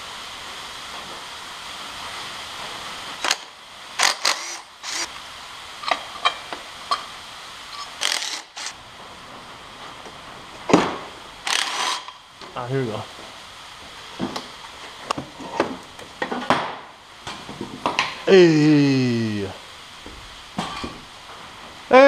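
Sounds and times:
cordless power tool whirring: 0:04.0 - 0:05.1, 0:07.8 - 0:08.8, 0:11.4 - 0:12.2.

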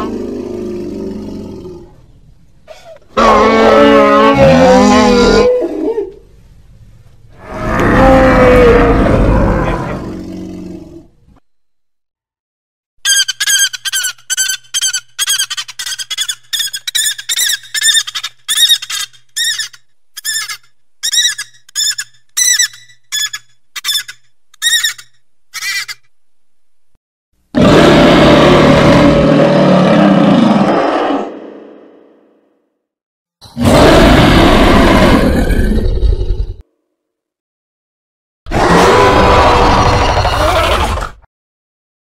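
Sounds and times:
high-pitched chirping squeaks: 0:13.0 - 0:26.0
harsh cartoon animal call: 0:27.6 - 0:31.7, 0:33.4 - 0:36.6, 0:38.5 - 0:41.3.

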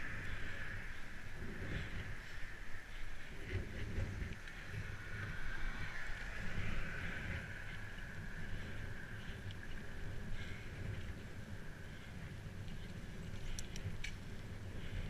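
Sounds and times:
bicycle rattles: 0:00.0 - 0:15.0
bicycle tyres rumbling on dirt: 0:00.0 - 0:15.0
wind hiss on camera: 0:00.0 - 0:15.0.

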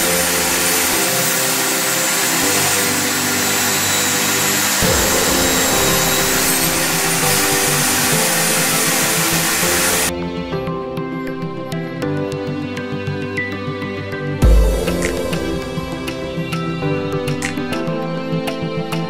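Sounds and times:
saw jolt: 0:00.0 - 0:10.1
table saw whining: 0:00.0 - 0:10.1.

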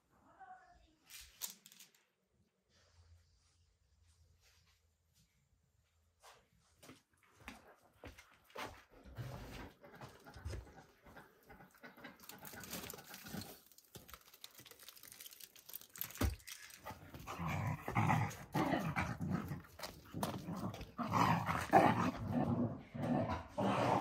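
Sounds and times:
handling sounds: 0:12.2 - 0:18.4.

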